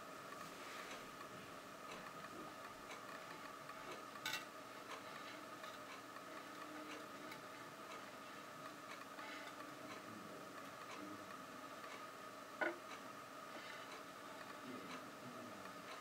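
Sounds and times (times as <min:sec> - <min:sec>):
low steady hum: 0:00.0 - 0:16.0
faint regular ticking: 0:00.2 - 0:16.0.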